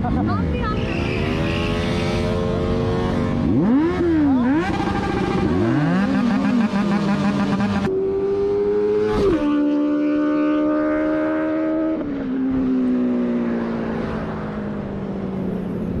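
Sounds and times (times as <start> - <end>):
motorcycle engine revving through gears: 0.0 - 14.3.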